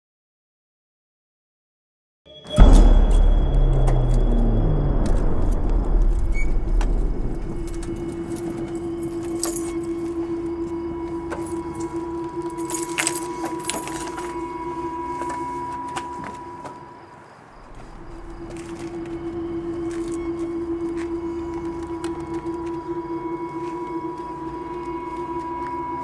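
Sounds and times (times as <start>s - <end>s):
steady tone: 2.3s - 26.0s
low rumble: 2.5s - 16.6s, 17.6s - 26.0s
keys jangling: 12.5s - 14.4s.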